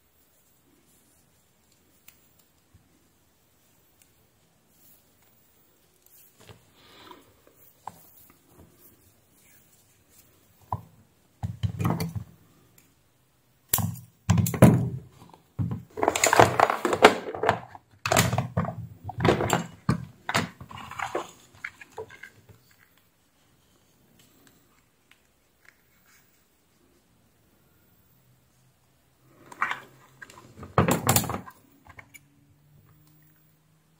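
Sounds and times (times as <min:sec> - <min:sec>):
plastic box rattling and knocking: 0:15.6 - 0:21.3.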